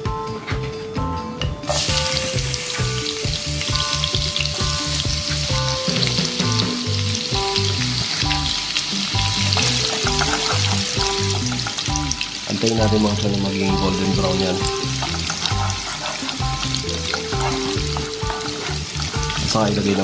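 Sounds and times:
background music with steady beat: 0.0 - 20.0
garlic sizzling in hot oil: 1.7 - 20.0
spatula stirring in wok: 7.3 - 12.5, 13.8 - 20.0.

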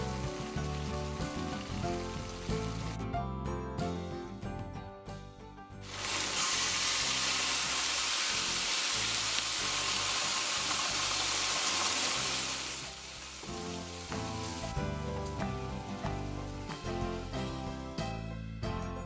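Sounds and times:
background music: 0.0 - 19.0
liquid sizzling in hot wok: 5.8 - 16.7.

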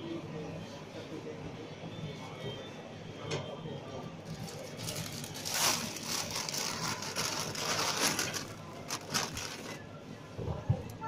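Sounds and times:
plastic bag rustling: 4.3 - 9.8.

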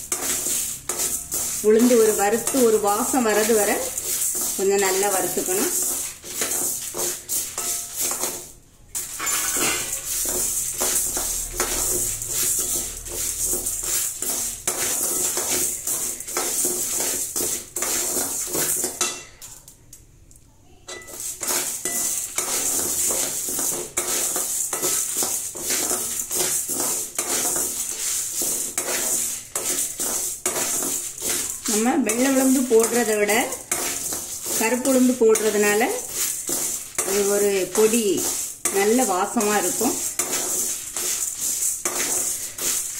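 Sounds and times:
metal spoon scraping a pan: 0.0 - 19.7, 20.8 - 42.9.

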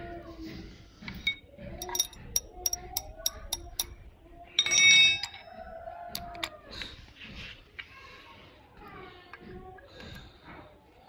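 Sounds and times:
jangling metal rattle: 1.0 - 6.5
metal parts clinking: 1.1 - 6.5.

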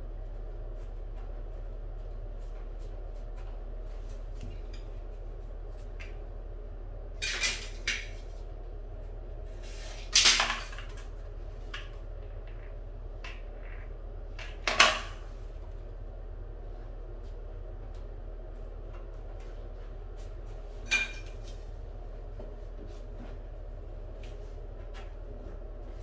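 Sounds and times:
steady low hum: 0.0 - 26.0
tools clattering on tile floor: 7.2 - 8.2, 9.9 - 11.1, 20.9 - 21.5.

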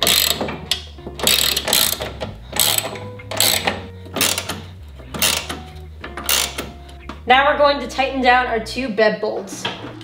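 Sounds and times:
ratcheting wrench clicking: 0.0 - 7.1.

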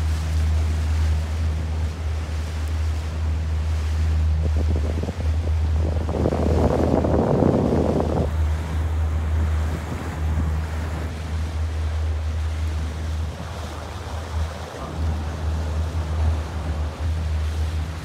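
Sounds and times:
boat engine drone: 0.0 - 18.0
water rushing past: 0.0 - 18.0
wind buffeting microphone: 0.0 - 18.0.

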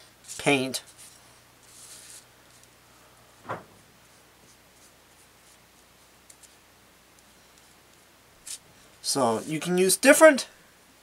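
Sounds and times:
paintbrush scratching on paper: 0.9 - 2.3
soft knock: 3.4 - 3.8.

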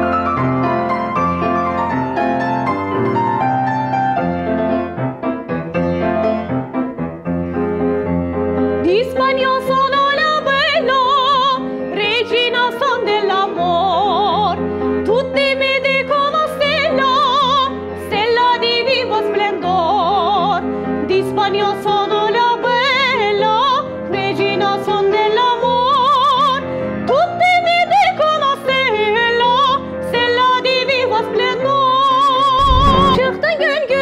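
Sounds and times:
piano accompaniment: 0.0 - 15.1, 32.6 - 33.7
soprano singing opera: 8.8 - 32.4.

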